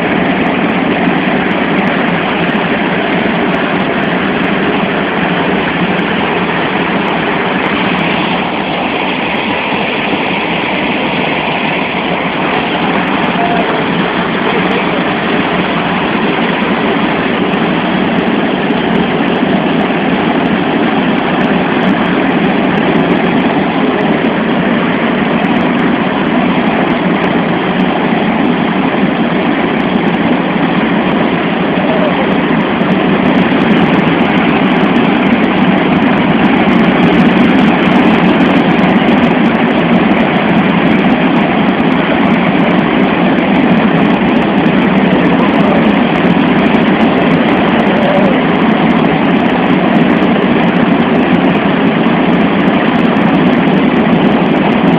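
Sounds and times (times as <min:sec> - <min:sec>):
jet engines and airflow rushing: 0:00.0 - 0:54.9.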